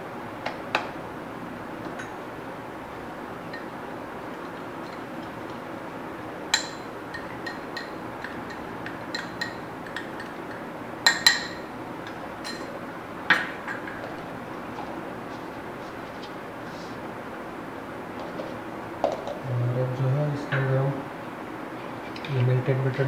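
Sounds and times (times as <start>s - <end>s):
spoon clinking on glass bowl: 6.5s - 10.4s, 11.0s - 11.6s.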